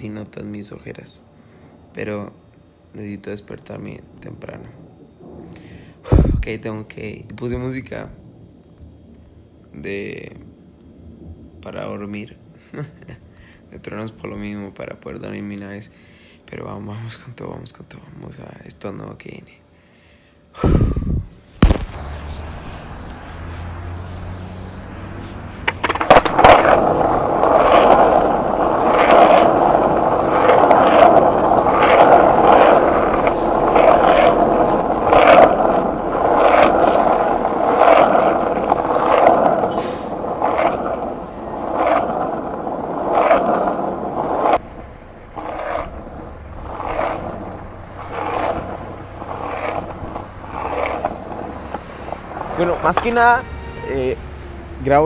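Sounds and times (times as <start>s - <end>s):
microphone rubbing and knocking: 6.1s - 6.5s.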